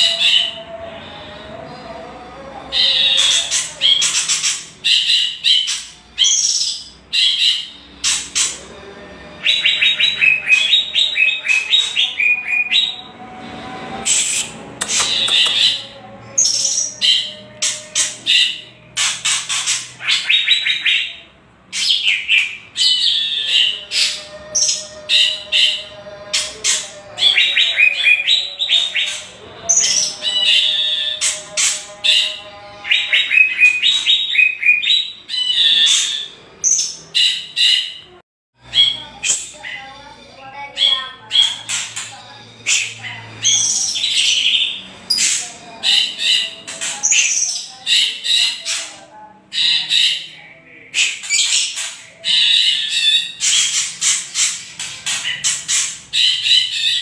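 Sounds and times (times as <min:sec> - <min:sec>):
harsh rattling bird calls: 0:02.8 - 0:08.7, 0:14.1 - 0:57.0.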